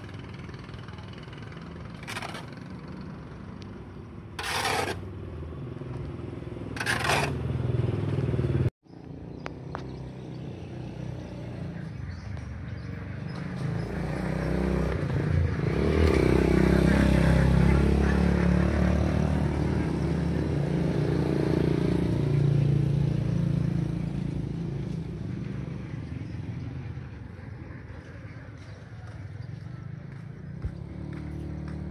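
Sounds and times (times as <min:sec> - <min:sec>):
vehicle engine passing: 0:13.5 - 0:26.6, 0:30.1 - 0:31.9.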